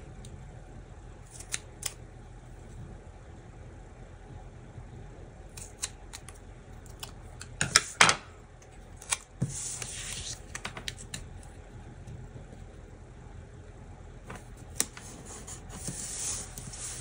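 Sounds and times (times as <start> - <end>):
scissors snipping paper: 1.3 - 2.0, 5.5 - 7.2
paper sliding across table: 9.4 - 10.4, 15.0 - 17.0.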